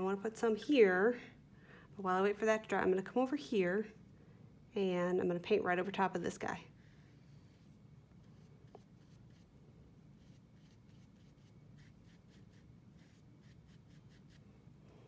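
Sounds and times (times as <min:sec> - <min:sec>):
low room hum: 0:00.0 - 0:15.0
paintbrush strokes on paper: 0:06.9 - 0:14.6.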